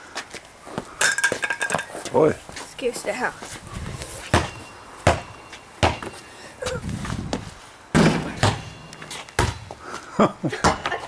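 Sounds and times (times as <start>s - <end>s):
basketball bouncing: 4.3s - 6.2s, 7.9s - 9.8s, 10.6s - 11.0s.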